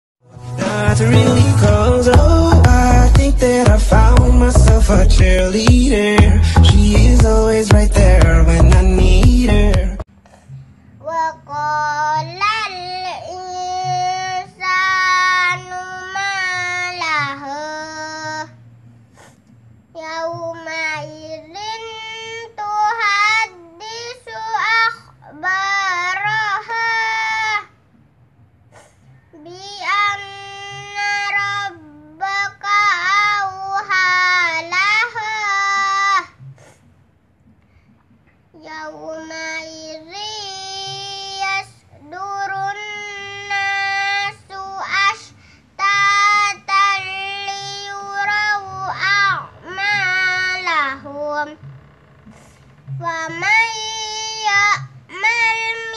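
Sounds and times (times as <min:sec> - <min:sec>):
girl chanting verses: 0:38.6 - 0:51.6.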